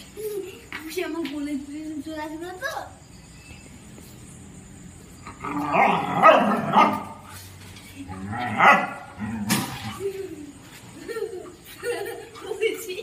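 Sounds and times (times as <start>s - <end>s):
dog barking and snarling: 5.3s - 7.3s, 8.1s - 10.0s.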